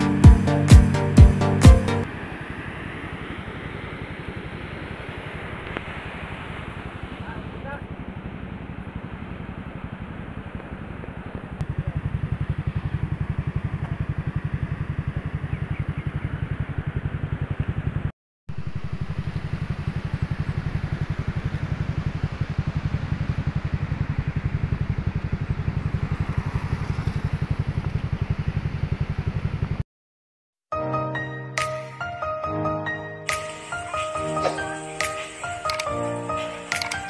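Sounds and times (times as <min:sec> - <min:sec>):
motorcycle engine idling: 0:06.6 - 0:29.8.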